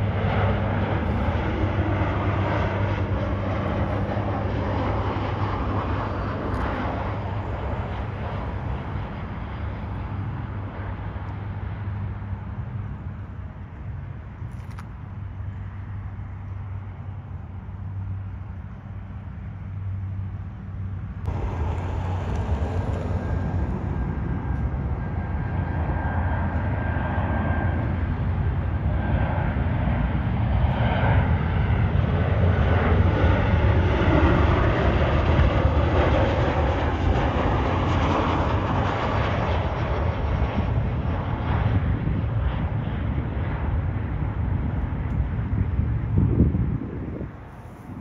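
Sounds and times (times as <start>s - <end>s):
jet engines roaring overhead: 0.0s - 48.0s
faint high whine: 21.3s - 26.8s.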